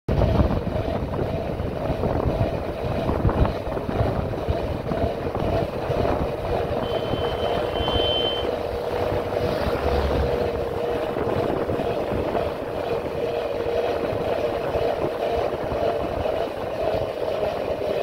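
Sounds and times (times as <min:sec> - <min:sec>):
motorcycle engine running: 0:00.1 - 0:18.0
wind buffeting microphone: 0:00.1 - 0:18.0
thin high steady tone: 0:06.8 - 0:08.6.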